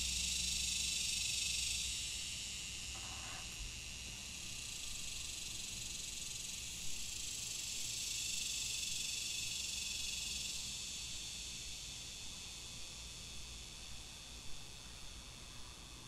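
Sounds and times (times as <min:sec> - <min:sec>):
cicadas buzzing: 0:00.1 - 0:12.1.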